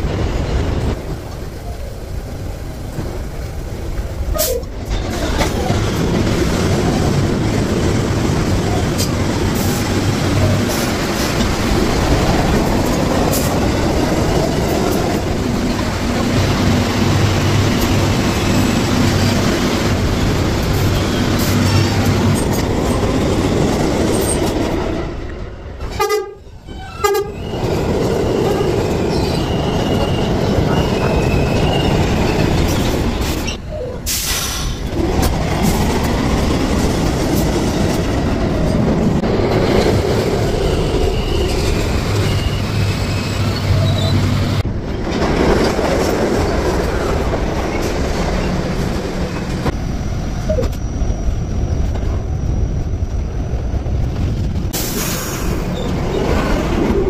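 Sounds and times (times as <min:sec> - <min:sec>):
subway train rumble: 0:00.0 - 0:57.0
train wheel squeal: 0:26.6 - 0:34.9, 0:39.9 - 0:44.6, 0:47.6 - 0:54.0, 0:54.8 - 0:57.0.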